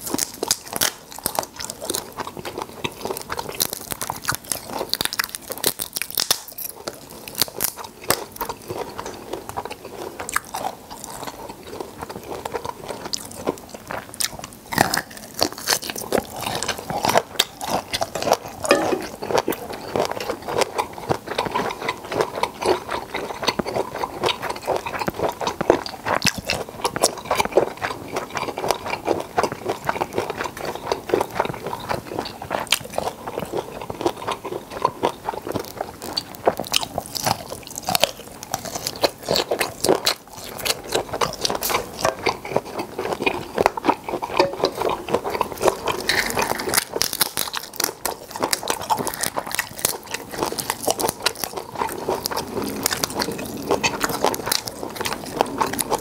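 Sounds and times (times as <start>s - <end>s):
person crunching shrimp: 0.0s - 56.0s.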